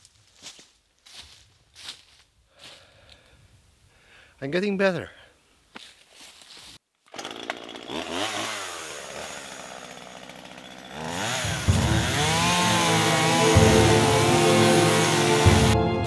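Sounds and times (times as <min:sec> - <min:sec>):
chainsaw cutting tree trunk: 0:07.1 - 0:15.8
chainsaw engine revving: 0:07.1 - 0:15.8.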